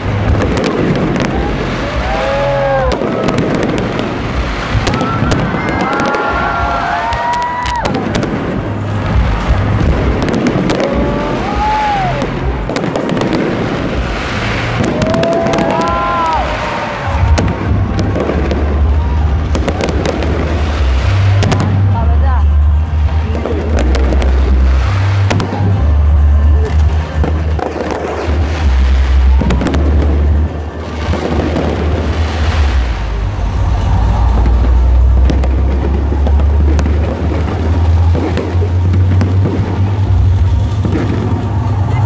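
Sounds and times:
fireworks crackling and popping: 0:00.0 - 0:42.0
fireworks whistling: 0:00.0 - 0:42.0
low rumble of fireworks bursts: 0:00.0 - 0:42.0
sharp fireworks reports: 0:00.0 - 0:42.0.

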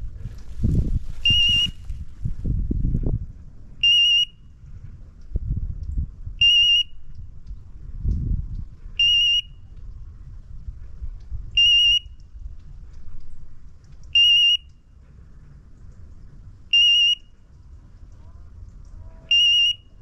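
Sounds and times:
low rumble: 0:00.0 - 0:03.8, 0:07.0 - 0:14.2.

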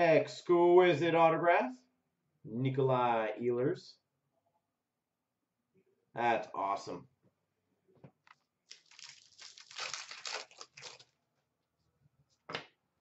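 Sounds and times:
plastic sleeve crinkling: 0:08.3 - 0:11.2.

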